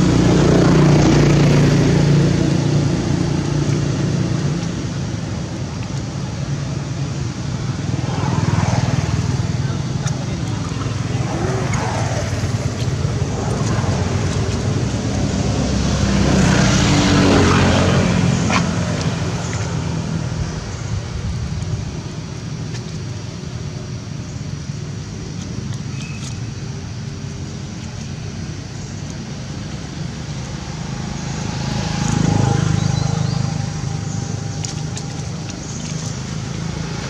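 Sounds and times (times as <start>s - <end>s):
traffic rumble: 0.0s - 37.0s
motor vehicle passing: 7.5s - 21.8s, 28.6s - 37.0s.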